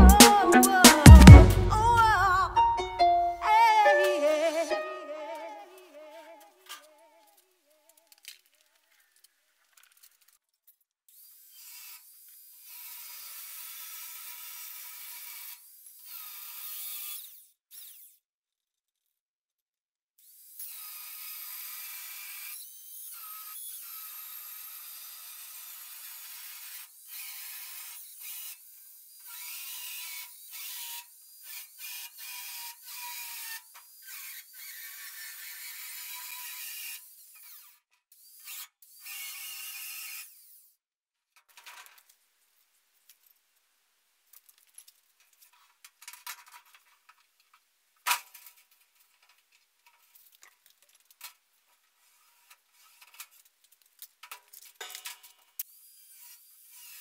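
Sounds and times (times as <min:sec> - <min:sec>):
angle grinder cutting steel: 0:20.2 - 0:40.6.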